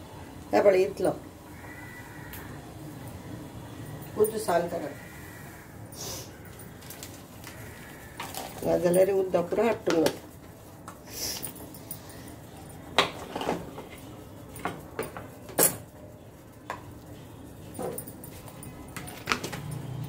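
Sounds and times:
containers and utensils clicking on counter: 18.9 - 19.8.

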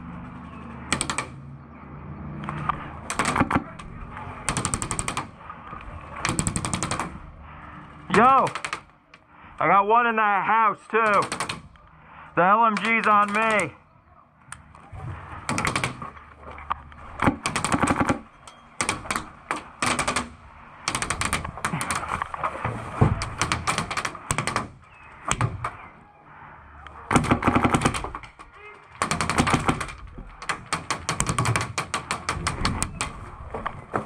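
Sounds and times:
airsoft gun bursts: 12.6 - 13.7.

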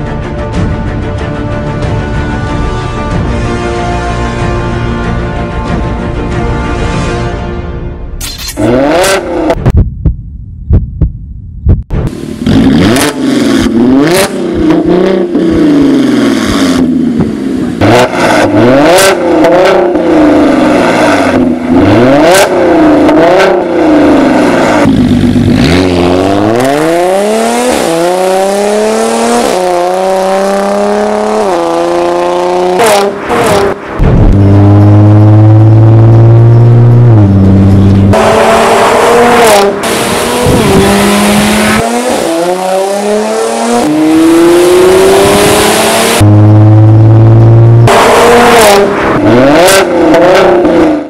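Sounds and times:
car engine revving: 8.5 - 9.7, 12.1 - 51.0
car accelerating through gears: 25.5 - 51.0.

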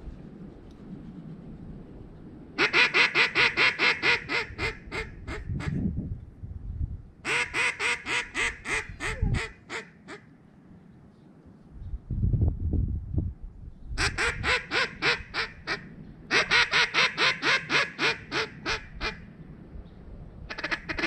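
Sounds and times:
duck call quacks: 2.6 - 5.8, 7.3 - 10.2, 14.0 - 19.2, 20.5 - 21.0.

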